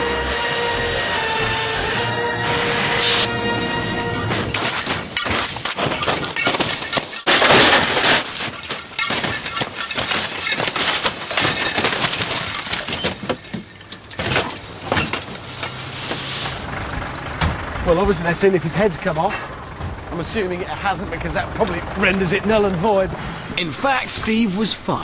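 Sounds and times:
car body crunching on tarmac: 4.1 - 23.5
debris knocking and clinking: 4.3 - 15.9
breaking glass: 4.4 - 15.4.

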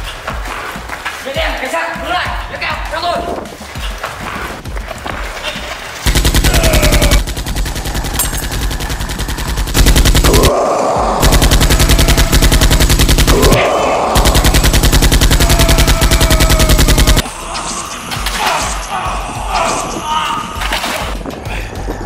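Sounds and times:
automatic gunfire: 6.1 - 10.6, 11.2 - 17.2.

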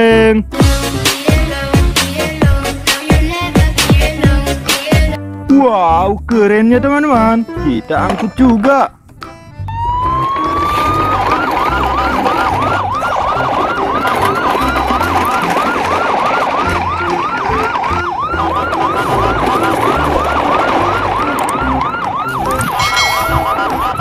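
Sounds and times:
low pulsing notes: 8.9 - 24.0
electronic siren yelping: 9.6 - 24.0.

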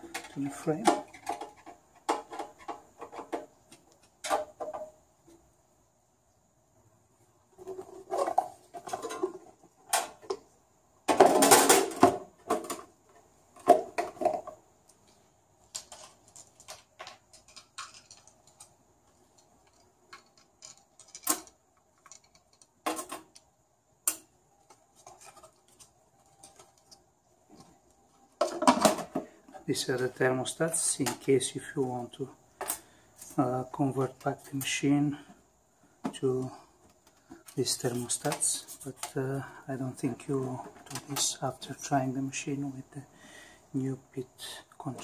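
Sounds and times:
parts clattering on metal machine: 11.1 - 12.9, 28.4 - 29.3.

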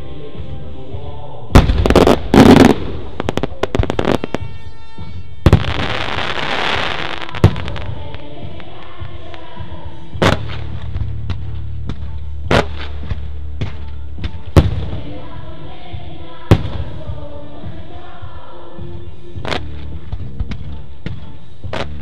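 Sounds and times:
music: 0.0 - 22.0
firework crackling pops: 1.6 - 4.6, 10.2 - 10.8, 12.5 - 13.2.

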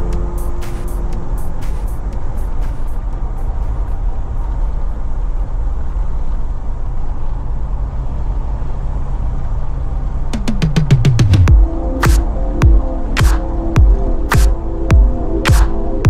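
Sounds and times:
electronic music: 0.0 - 4.4, 10.4 - 16.0
car driving low rumble: 0.0 - 16.0.

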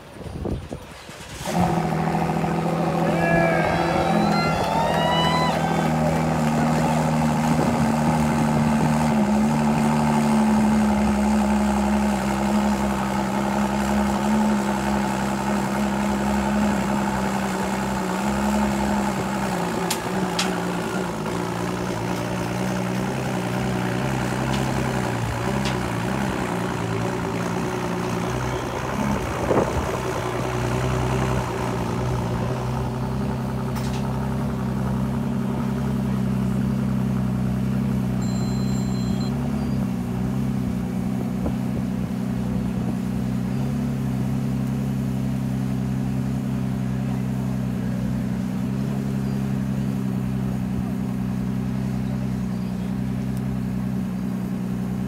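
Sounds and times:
engine idling: 1.1 - 55.0.

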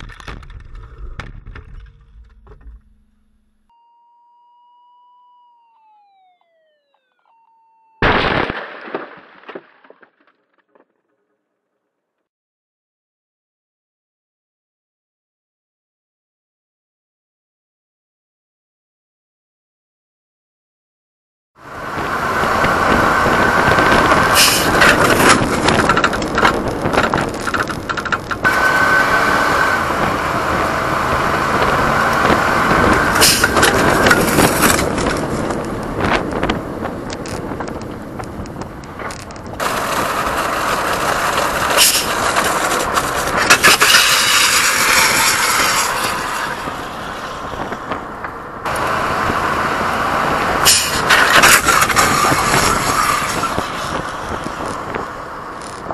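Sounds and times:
rushing wind and road noise: 21.6 - 55.9
motorcycle scraping on pavement: 22.4 - 48.0, 50.6 - 55.9.

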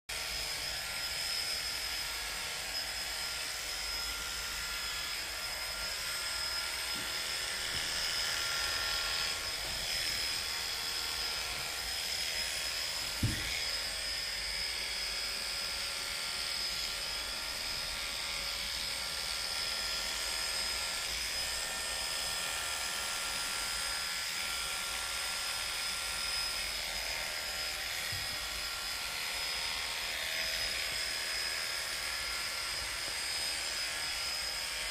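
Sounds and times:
electric hair clippers whining: 0.1 - 34.9
thump: 13.1 - 13.6.

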